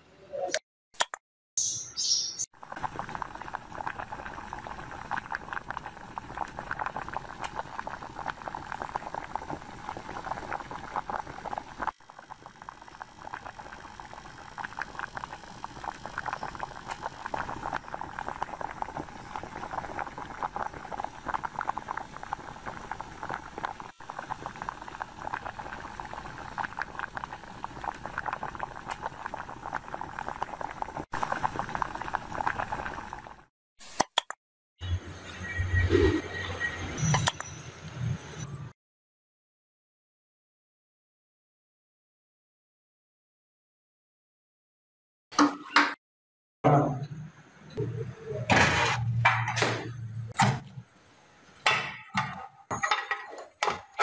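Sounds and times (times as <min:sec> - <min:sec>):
fizzing gas bubbles: 0:02.6 - 0:33.5.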